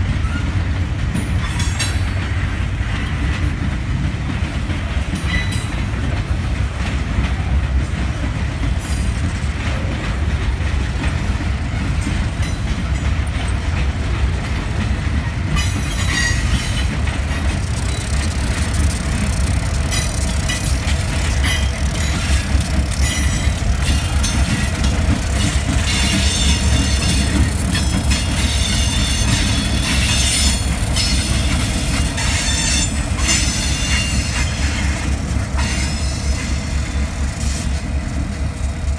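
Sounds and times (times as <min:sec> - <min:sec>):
freight train rumbling: 0:00.0 - 0:38.9
wheels clicking over rails: 0:00.0 - 0:38.9
wheel squeal and clatter: 0:00.1 - 0:00.7, 0:15.2 - 0:37.8.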